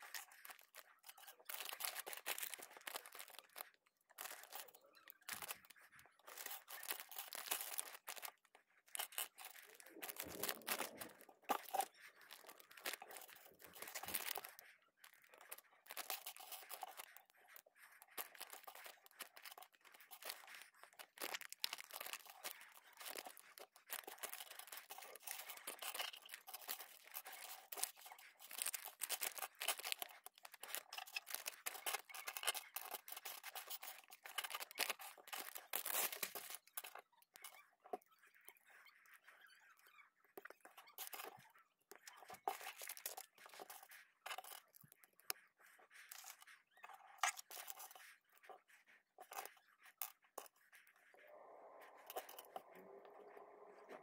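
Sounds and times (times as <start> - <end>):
plastic bags crinkling: 0.0 - 4.7, 5.3 - 17.2, 17.8 - 37.0, 42.3 - 44.6.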